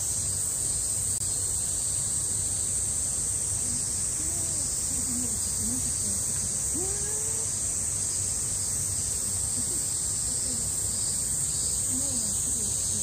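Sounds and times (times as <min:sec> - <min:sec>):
cicadas chorus: 0:00.0 - 0:13.0
faint distant voices: 0:03.4 - 0:13.0.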